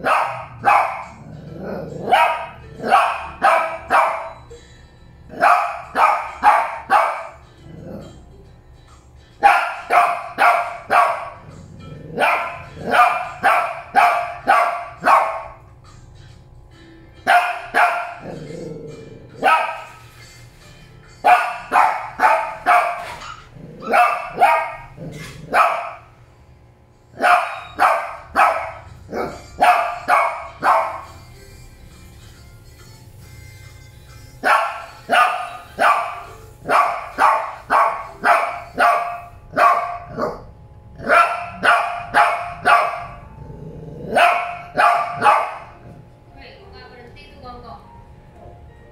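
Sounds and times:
dog barking sharply: 0.0s - 1.1s, 9.4s - 11.3s, 12.2s - 15.4s.

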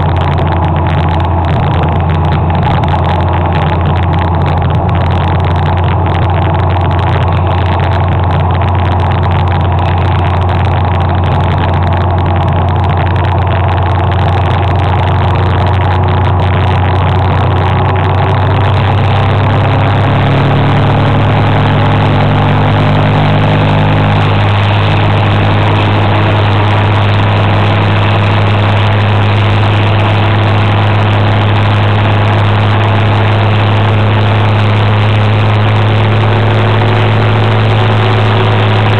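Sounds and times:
motor scooter engine droning: 0.0s - 38.9s.

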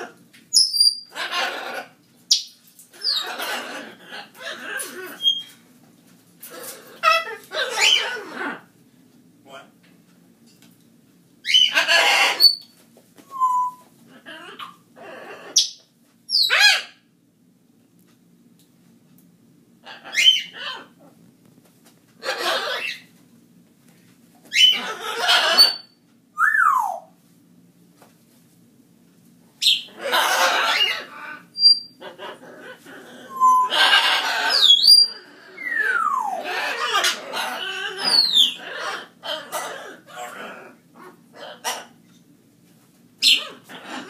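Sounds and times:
harsh animal cry: 1.1s - 2.0s, 3.0s - 5.5s, 6.4s - 8.7s, 11.5s - 12.6s, 14.1s - 15.6s, 19.8s - 21.1s, 22.2s - 23.0s, 24.6s - 25.9s, 29.9s - 42.0s, 43.2s - 44.0s
rough animal calls: 30.0s - 41.9s.

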